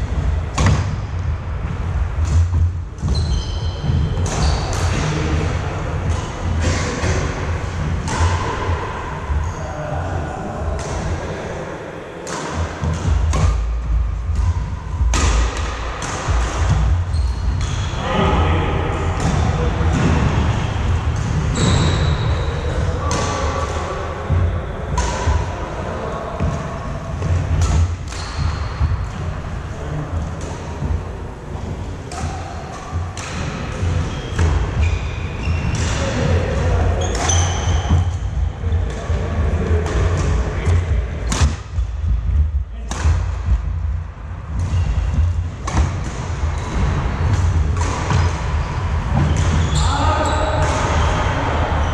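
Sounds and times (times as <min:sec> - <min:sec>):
sneaker squeaks on wooden floor: 0:03.0 - 0:05.0, 0:17.0 - 0:18.0, 0:21.5 - 0:22.8, 0:28.2 - 0:29.0, 0:34.0 - 0:36.1, 0:37.0 - 0:38.2, 0:48.1 - 0:50.6
racket striking shuttlecock: 0:12.2 - 0:18.0, 0:24.9 - 0:25.5, 0:27.2 - 0:29.3, 0:30.3 - 0:39.2, 0:39.8 - 0:41.9, 0:44.5 - 0:49.7
steady low rumble: 0:38.1 - 0:49.2.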